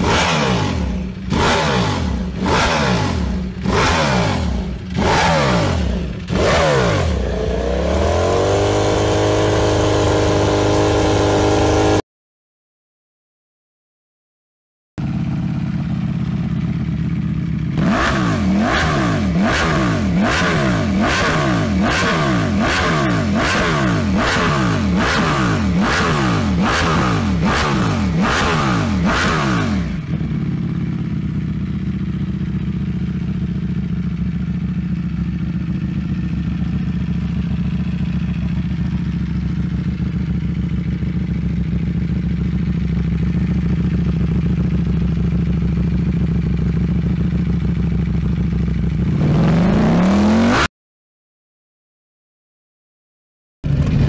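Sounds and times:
motorcycle engine idling: 0.0 - 11.0, 15.0 - 49.3, 53.6 - 54.0
motorcycle engine revving: 0.0 - 12.0, 15.0 - 50.7, 53.6 - 54.0.

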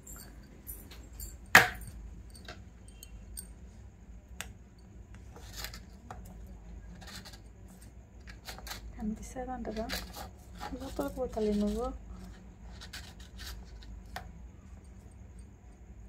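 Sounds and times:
light clicks and clinks: 0.0 - 3.6.

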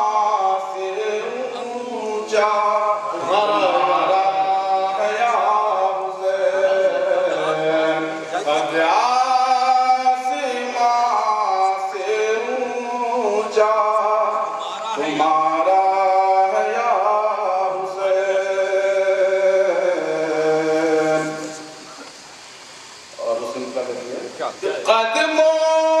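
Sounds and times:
man chanting into microphone: 0.0 - 21.9, 24.6 - 26.0.

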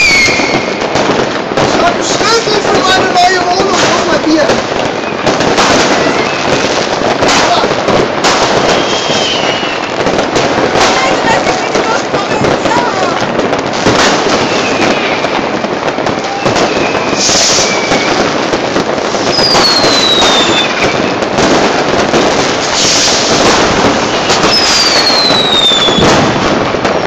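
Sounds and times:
whistling rockets: 0.0 - 4.2, 4.8 - 7.6, 8.2 - 27.0
fireworks and firecrackers banging: 0.0 - 27.0.

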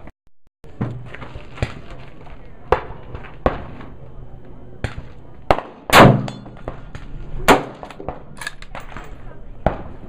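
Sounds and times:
rifle gunshots with echo: 5.5 - 8.4.

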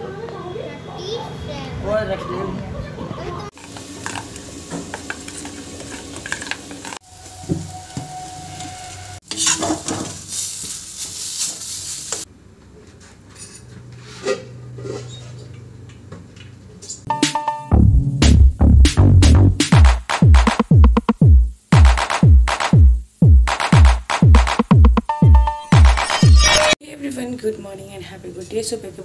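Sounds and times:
food sizzling in metal pan: 3.5 - 12.3
pots and utensils clinking: 3.6 - 11.6.

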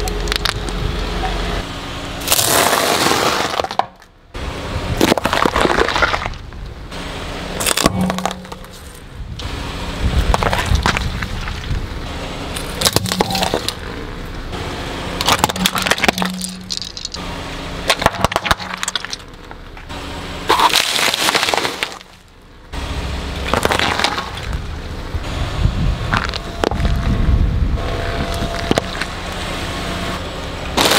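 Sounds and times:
fruit squashing and splitting: 2.2 - 4.1, 7.6 - 8.9, 12.7 - 13.8, 20.5 - 22.2
sharp cracks and crunches: 2.2 - 4.2, 5.0 - 6.7, 7.6 - 9.5, 10.2 - 11.8, 12.5 - 13.8, 15.2 - 17.2, 17.8 - 19.9, 20.5 - 22.4, 23.4 - 24.7, 26.1 - 27.0, 28.3 - 29.2
tyre crushing objects: 20.5 - 22.3.

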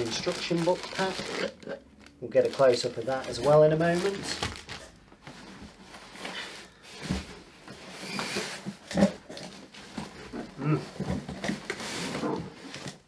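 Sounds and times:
packing scraping: 0.0 - 4.8
plastic wrapping rustling: 0.0 - 13.0.

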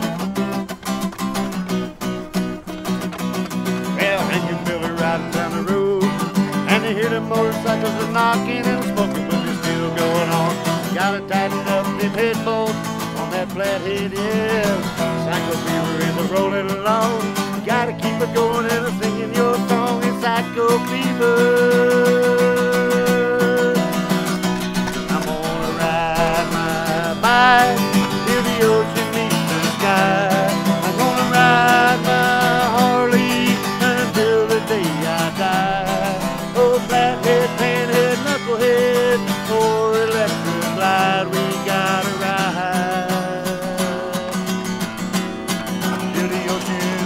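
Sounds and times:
acoustic guitar country song: 0.0 - 47.0.

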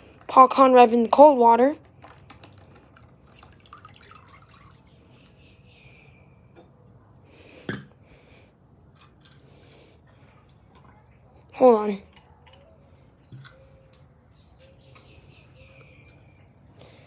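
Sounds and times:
water drips and splashes: 2.9 - 5.4.

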